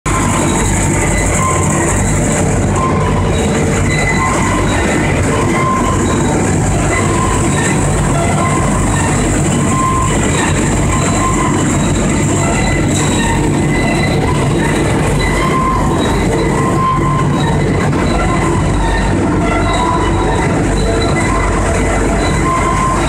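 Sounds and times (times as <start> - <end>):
industrial machinery din: 0.0 - 23.0.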